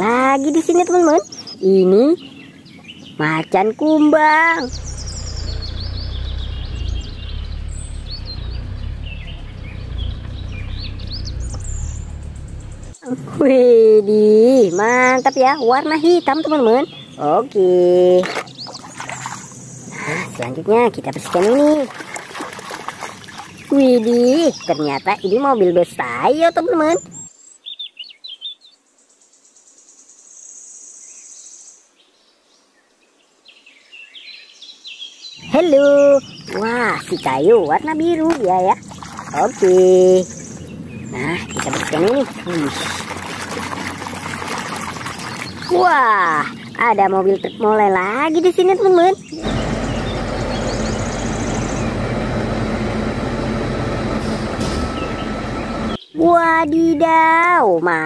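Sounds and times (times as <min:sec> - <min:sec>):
bird chirps: 0:00.0 - 0:13.1, 0:14.4 - 0:31.8, 0:33.5 - 0:52.8, 0:54.5 - 0:56.6
diesel engine running: 0:04.4 - 0:13.4, 0:35.4 - 0:47.7, 0:48.4 - 0:56.0.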